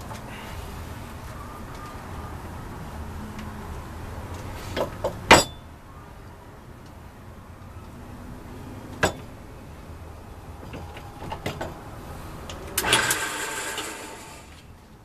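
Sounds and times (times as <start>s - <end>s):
turning tool rattling cut: 12.8s - 14.6s
wood lathe humming: 12.8s - 14.6s.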